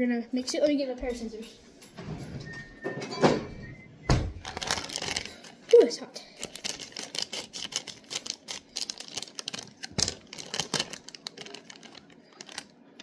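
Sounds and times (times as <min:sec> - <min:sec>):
scissors snipping plastic bag: 0:04.4 - 0:12.7.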